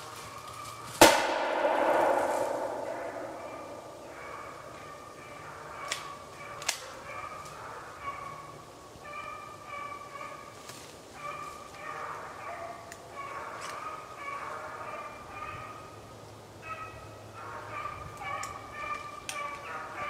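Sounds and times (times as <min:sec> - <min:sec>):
sharp percussive hits: 0:01.0 - 0:04.3.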